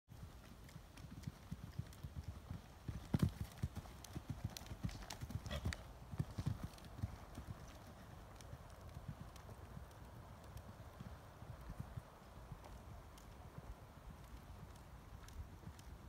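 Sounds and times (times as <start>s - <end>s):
horse hooves cantering: 0.1s - 16.0s.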